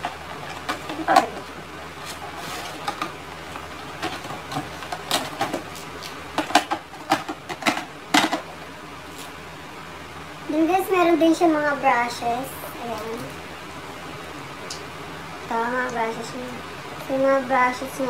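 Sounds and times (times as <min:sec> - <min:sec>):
plastic compacts clicking and clattering: 0:06.4 - 0:08.5.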